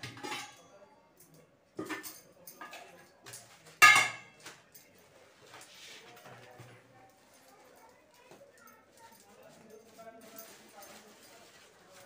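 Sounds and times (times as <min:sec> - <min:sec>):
steel containers and lids clattering: 0:00.0 - 0:00.7, 0:01.8 - 0:04.4.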